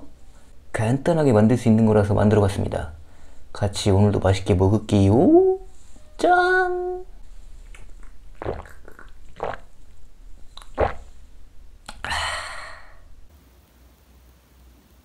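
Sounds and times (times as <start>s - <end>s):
breathy exhale: 3.0s - 3.5s, 12.0s - 13.3s
swallowing gulps: 7.2s - 13.3s.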